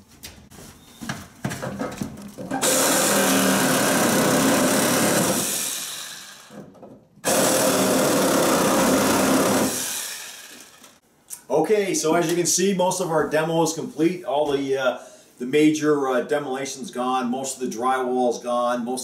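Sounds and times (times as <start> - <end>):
reciprocating saw cutting pipe: 2.6 - 6.6, 7.2 - 11.0.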